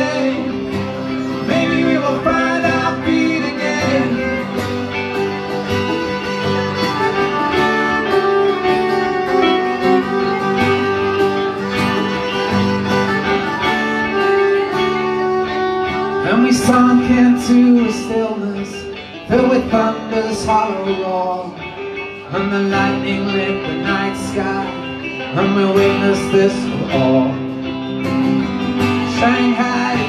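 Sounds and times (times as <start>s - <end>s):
fiddle playing held notes: 0.0s - 19.6s
picked banjo: 0.0s - 30.0s
strummed acoustic guitar: 0.0s - 30.0s.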